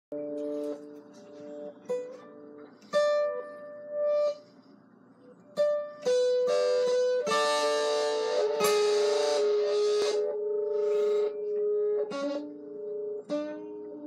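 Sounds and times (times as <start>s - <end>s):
acoustic guitar plucked and strummed: 0.1s - 14.0s.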